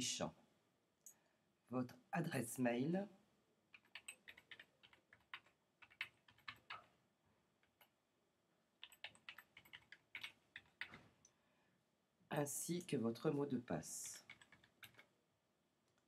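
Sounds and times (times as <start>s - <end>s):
faint keyboard typing: 3.7s - 7.0s, 7.6s - 8.0s, 8.8s - 11.4s, 13.9s - 15.2s.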